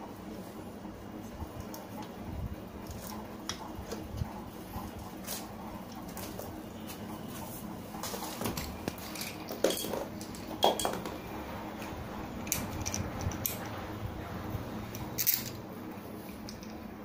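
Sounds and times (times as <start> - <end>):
steady low hum: 0.0 - 17.0
metal parts clinking and knocking: 8.6 - 11.2, 12.4 - 13.7, 14.9 - 15.6.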